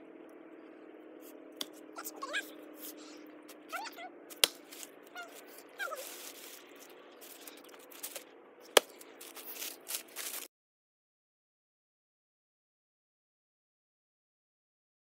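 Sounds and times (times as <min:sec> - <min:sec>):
axe striking a log: 0:04.3 - 0:04.8, 0:08.7 - 0:09.0
dry leaves rustling underfoot: 0:04.4 - 0:10.5.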